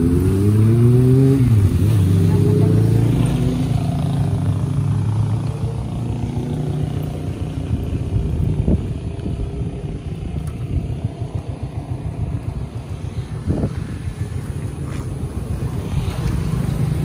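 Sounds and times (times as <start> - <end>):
low rumble of street traffic: 0.0 - 17.0
motorcycle engine running: 0.0 - 17.0.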